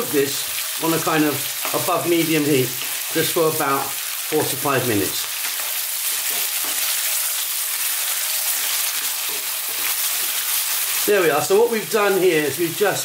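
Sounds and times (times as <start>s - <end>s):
meat sizzling in a wok: 0.0s - 13.0s
wooden spoon stirring: 8.2s - 11.1s.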